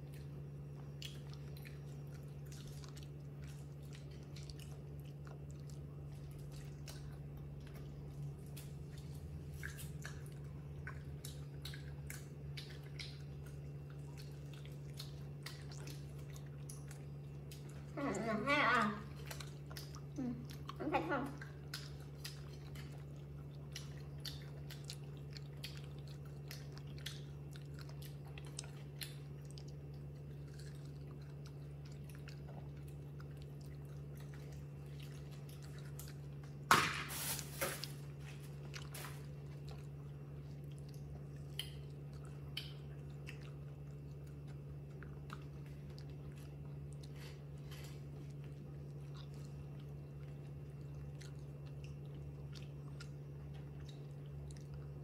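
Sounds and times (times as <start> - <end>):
monkey chewing crunchy food: 0.0 - 55.0
steady low hum: 0.0 - 55.0.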